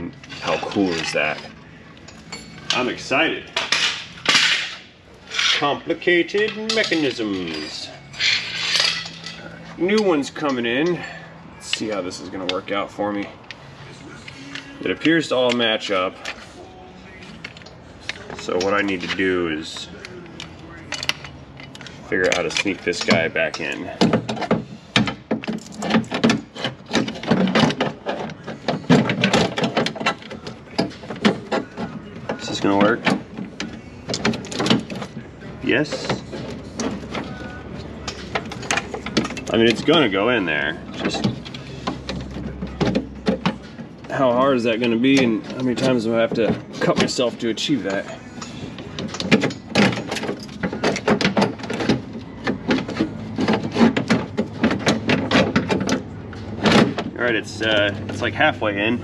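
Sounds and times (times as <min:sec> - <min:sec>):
metal and plastic clicks and rattles: 0:17.4 - 0:58.3.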